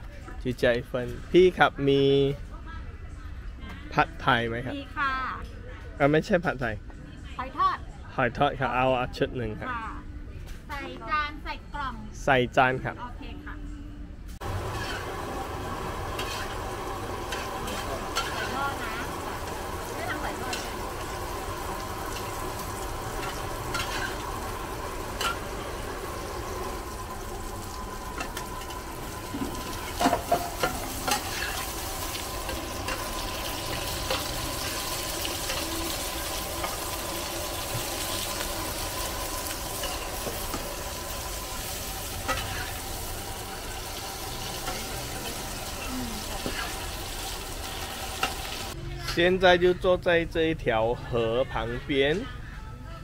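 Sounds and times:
omelette sizzling in pan: 14.4s - 48.8s
spatula clinking: 16.0s - 18.6s, 22.1s - 24.4s, 29.4s - 36.9s.

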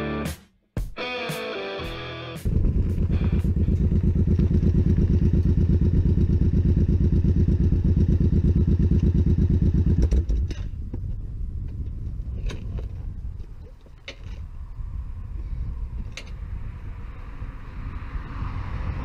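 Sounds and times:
motorcycle engine idling: 2.4s - 14.0s.

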